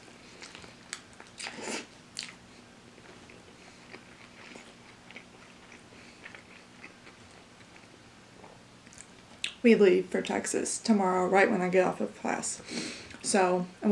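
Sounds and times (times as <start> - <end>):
chewing with small clicks: 2.2 - 2.4, 3.0 - 9.6.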